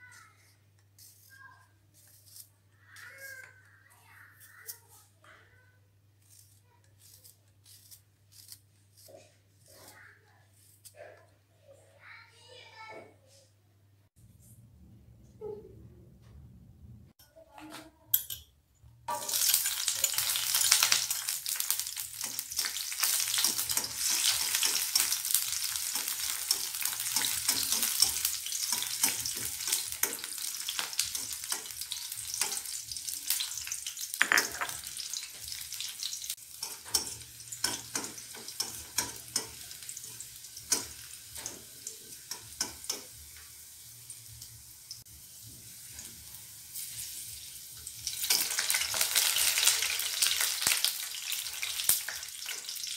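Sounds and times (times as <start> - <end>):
metal spatula scraping wok: 19.1 - 43.1
garlic sizzling in hot oil: 19.1 - 52.9.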